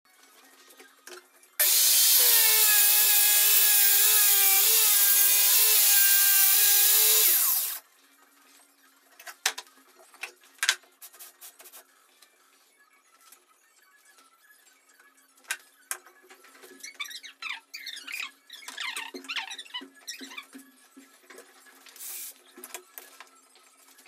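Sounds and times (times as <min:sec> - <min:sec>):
circular saw cutting: 0:01.6 - 0:07.8.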